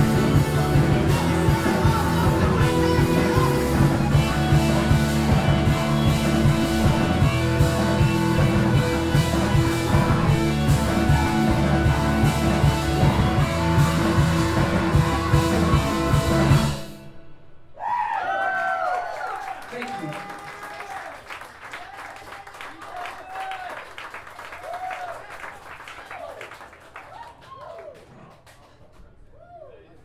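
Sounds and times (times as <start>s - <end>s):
rock band playing live: 0.0s - 17.2s.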